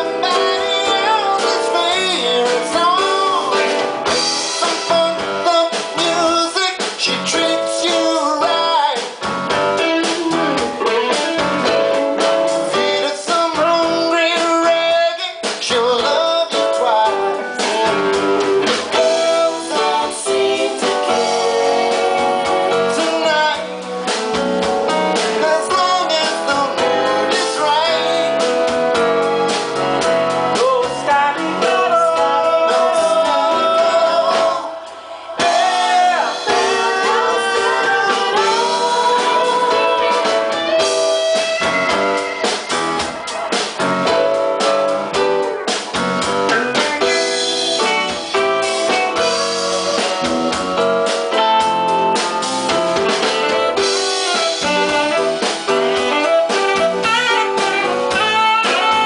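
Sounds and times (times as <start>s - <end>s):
person singing: 0.0s - 24.0s, 25.2s - 29.0s, 30.5s - 43.8s, 46.5s - 50.6s, 53.3s - 59.0s
bass guitar: 0.0s - 59.0s
drum kit: 0.0s - 59.0s
electric guitars: 0.0s - 59.0s
keyboard: 0.0s - 59.0s
saxophone: 35.4s - 44.2s, 46.5s - 59.0s.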